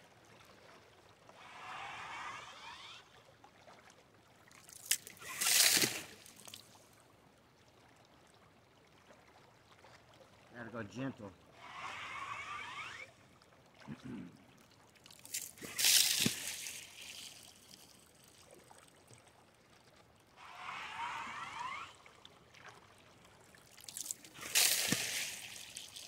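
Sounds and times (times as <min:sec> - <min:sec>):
water sloshing gushes: 0:00.6 - 0:06.8, 0:14.9 - 0:19.3, 0:20.3 - 0:26.0
suction pump gurgling slurps: 0:01.3 - 0:03.4, 0:04.6 - 0:06.7, 0:11.5 - 0:14.4, 0:15.0 - 0:18.6, 0:20.4 - 0:26.0.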